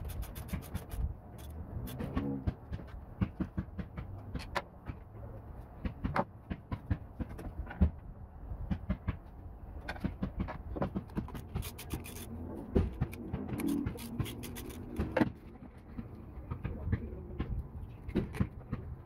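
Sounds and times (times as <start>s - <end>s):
hands working cables with clicks: 9.8s - 19.0s.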